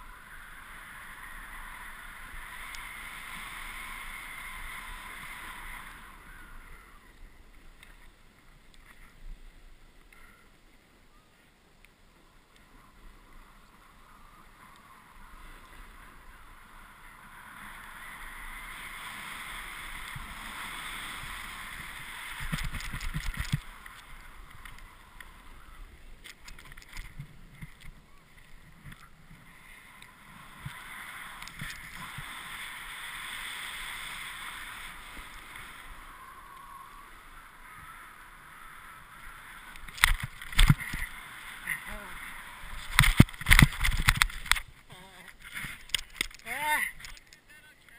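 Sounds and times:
snowboard scraping on snow: 0:00.0 - 0:06.4, 0:12.9 - 0:25.6, 0:28.6 - 0:39.7, 0:40.3 - 0:43.9.

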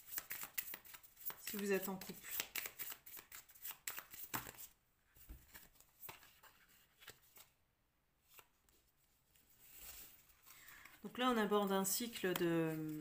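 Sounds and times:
cards tapping and rustling: 0:00.1 - 0:04.7.

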